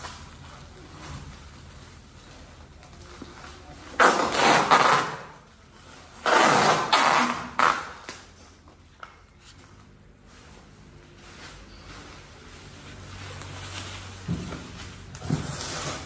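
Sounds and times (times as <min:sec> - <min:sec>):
packing tape pulled off roll: 0:00.0 - 0:09.9.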